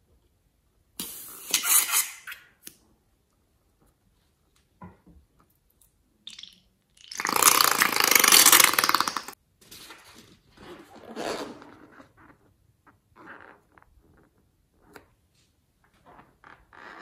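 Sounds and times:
liquid sputtering squirt: 6.3s - 9.4s.

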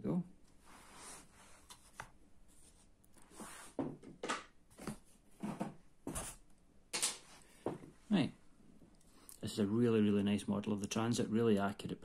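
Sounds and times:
cardboard knocks and scrapes: 4.7s - 6.4s.

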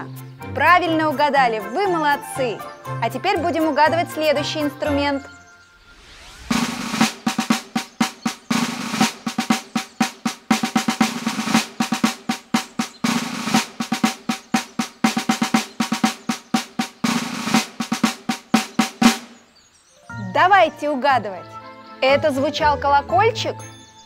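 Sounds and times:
small drum beaten with sticks: 6.5s - 19.4s.

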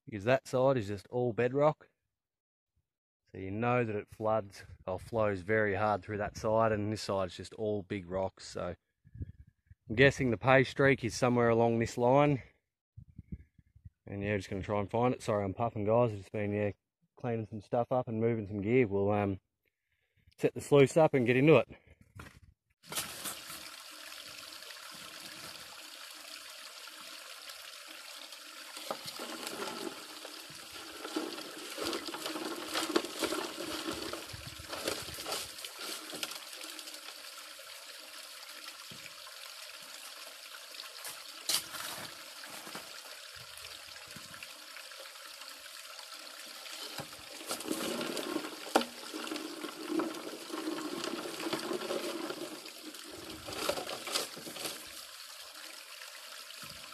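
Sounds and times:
water pouring down a sluice: 22.8s - 56.9s
gravel and stones rattling: 28.8s - 36.4s, 46.8s - 55.0s.

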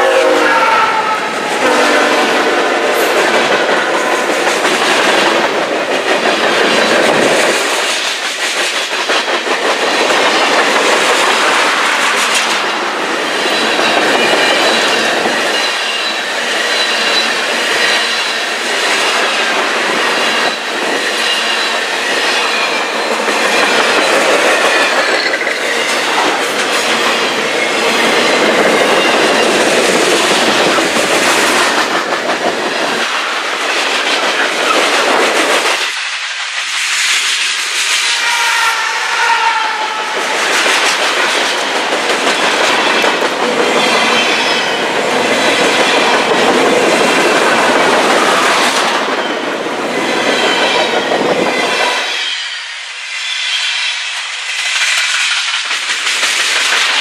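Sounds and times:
steel wheels rolling on rail: 0.0s - 57.0s
wheels clacking over rail joints: 1.4s - 36.7s, 39.8s - 52.0s, 54.5s - 57.0s
high wheel squeal: 13.2s - 18.6s, 20.0s - 26.4s.

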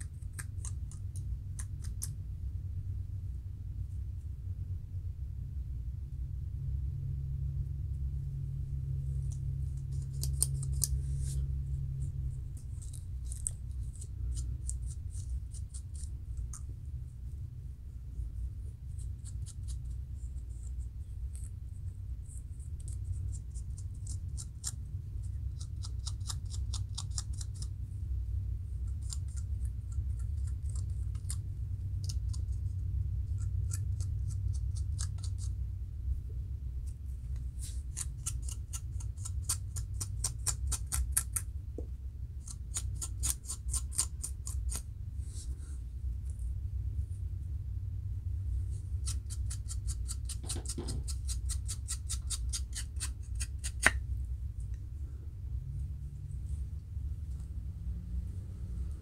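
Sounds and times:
low hum: 0.0s - 59.0s
comb scratching scalp: 9.1s - 11.6s, 12.5s - 16.7s, 18.8s - 21.6s, 22.3s - 27.7s, 37.4s - 41.4s, 42.4s - 45.6s, 48.6s - 54.0s.

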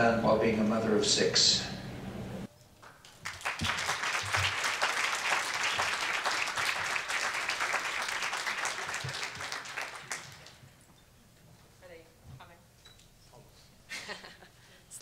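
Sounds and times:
audience applauding: 2.8s - 10.8s.

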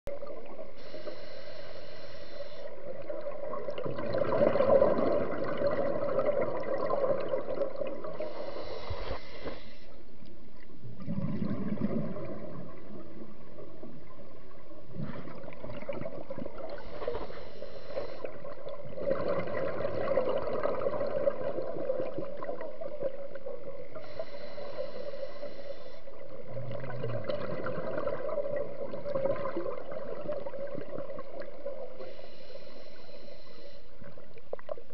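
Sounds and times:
regulator hiss on inhale: 0.7s - 3.0s, 8.1s - 10.2s, 16.7s - 18.6s, 23.9s - 26.4s, 32.0s - 34.3s
bubbling gurgle of exhaled air: 2.7s - 9.4s, 10.7s - 32.1s.

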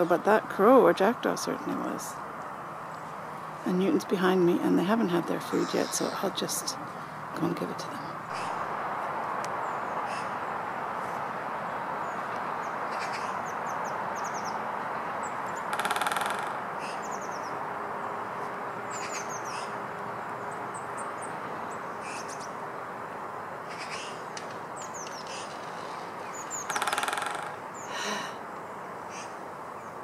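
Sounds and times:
small birds chirping: 0.0s - 8.7s, 9.4s - 22.9s, 23.6s - 30.0s
steady background noise: 0.0s - 30.0s
woodpecker drumming on wood: 15.5s - 17.3s, 23.7s - 27.9s.

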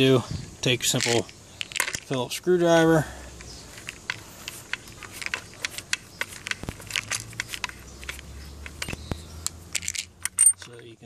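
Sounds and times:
screwdriver clicks and scrapes: 3.4s - 10.8s.

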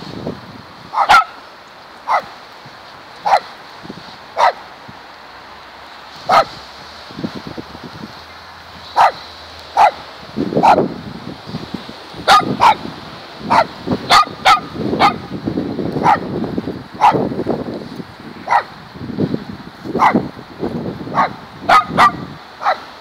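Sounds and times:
small dog barking: 0.9s - 1.4s, 2.0s - 2.4s, 3.2s - 3.5s, 4.4s - 4.6s, 6.3s - 6.6s, 8.9s - 10.0s, 10.6s - 10.9s, 12.2s - 12.9s, 13.5s - 15.3s, 16.0s - 16.3s, 17.0s - 17.2s, 18.4s - 18.7s, 20.0s - 20.2s, 21.1s - 22.9s.

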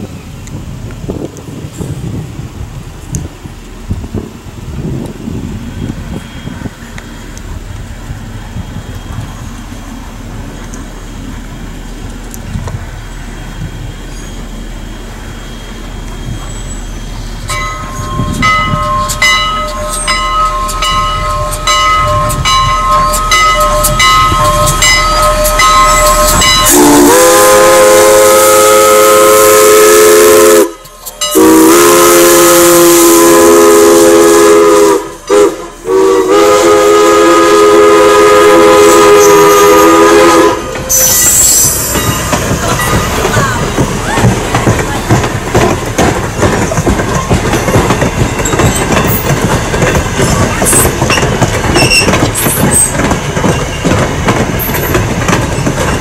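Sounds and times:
wind rumble: 0.0s - 56.0s
steam whistle blasts: 15.3s - 42.0s
bell ringing steadily: 17.5s - 26.8s, 30.9s - 31.5s, 41.0s - 43.5s.

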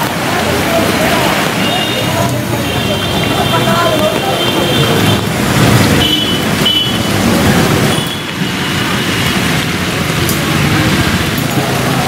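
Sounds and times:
traffic rumble: 0.0s - 12.0s
short high tones: 3.2s - 5.6s.

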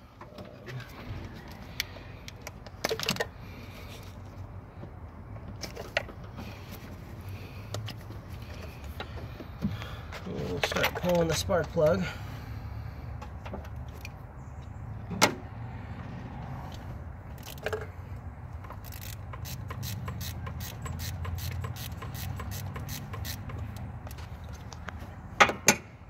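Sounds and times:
ratchet clicking: 18.6s - 23.8s.

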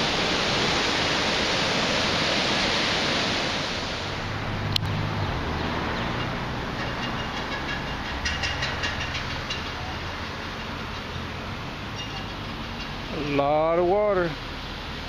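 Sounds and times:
river water roaring: 0.0s - 15.0s
vehicle idling hum: 4.0s - 15.0s.

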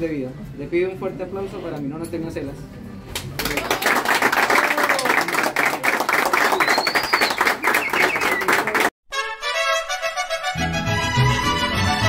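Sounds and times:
people applauding: 3.2s - 9.0s
music: 9.1s - 12.0s.

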